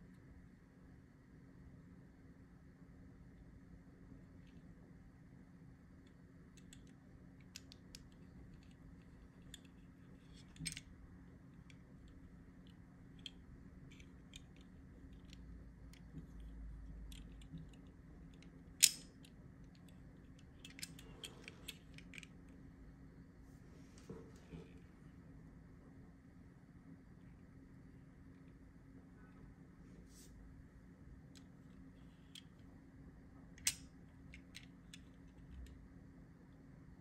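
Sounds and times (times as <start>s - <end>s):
small clicks of toy car handling: 6.0s - 10.9s, 11.6s - 22.4s, 31.3s - 32.7s, 33.6s - 35.8s.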